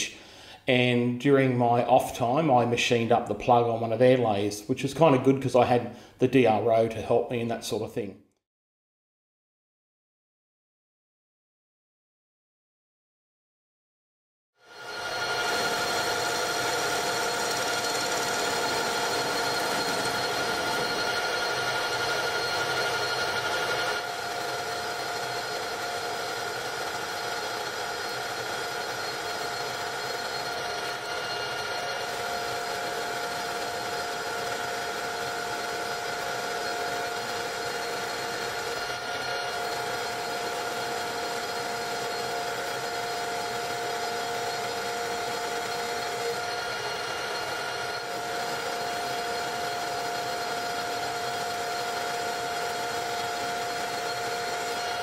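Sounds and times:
metal lathe whining: 0:14.6 - 0:55.0.

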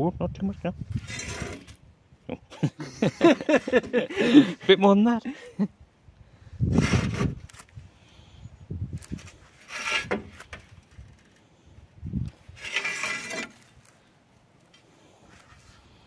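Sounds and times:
metal scraping and creaking: 0:00.9 - 0:01.8, 0:06.7 - 0:07.6, 0:09.0 - 0:11.5, 0:12.2 - 0:13.9.

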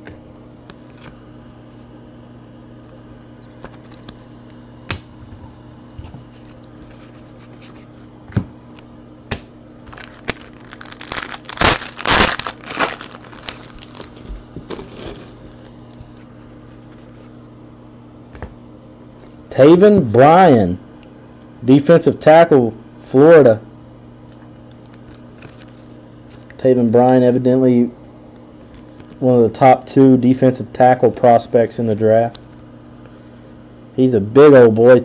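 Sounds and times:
foil wrapper crinkling: 0:09.8 - 0:15.4, 0:24.7 - 0:26.5.

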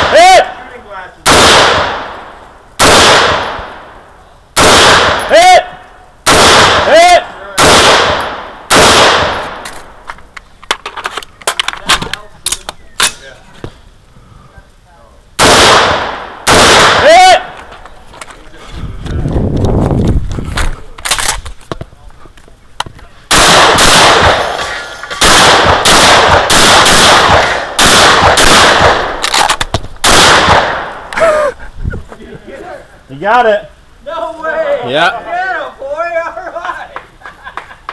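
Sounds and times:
rifle shots with echo: 0:01.2 - 0:04.0, 0:04.6 - 0:05.4, 0:06.2 - 0:09.7, 0:15.4 - 0:17.4, 0:23.3 - 0:31.1.

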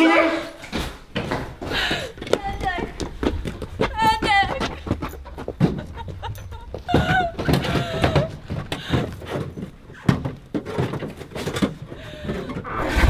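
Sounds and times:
woman crying in distress: 0:06.5 - 0:09.1.

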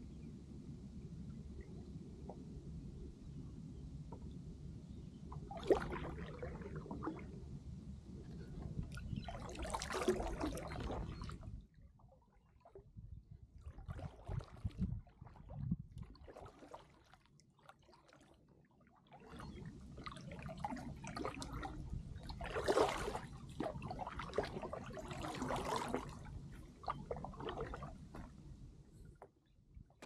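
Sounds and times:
paddle strokes through water: 0:05.1 - 0:07.5, 0:08.1 - 0:30.0.

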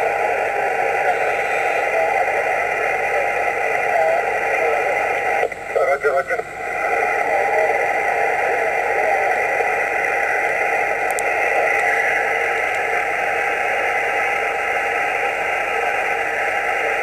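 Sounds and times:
radio static hiss: 0:00.0 - 0:17.0.

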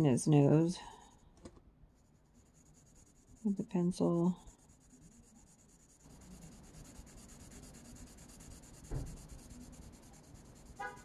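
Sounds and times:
pencil scratching on paper: 0:02.0 - 0:11.0.

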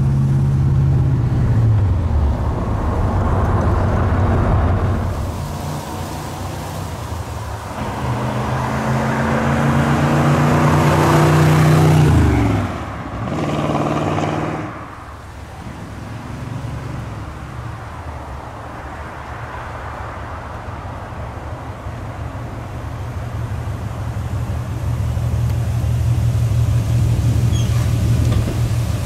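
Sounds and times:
car engine driving by: 0:00.0 - 0:19.4.

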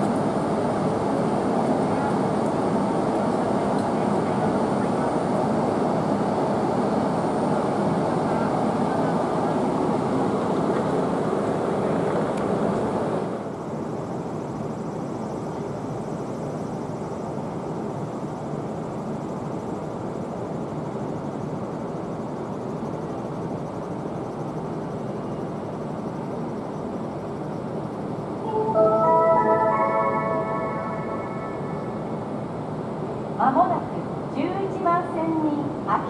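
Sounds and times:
train rumbling: 0:28.3 - 0:34.4.

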